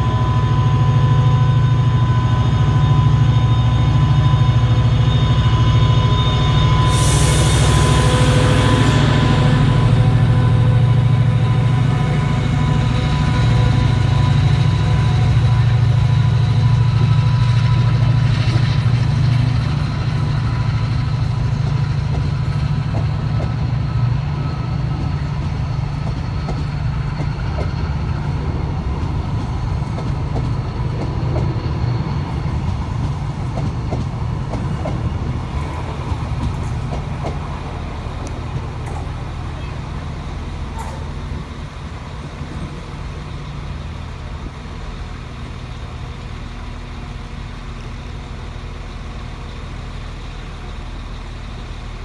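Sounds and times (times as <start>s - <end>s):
locomotive engine drone: 0.0s - 52.0s
train wheels clattering over rails: 12.2s - 43.0s.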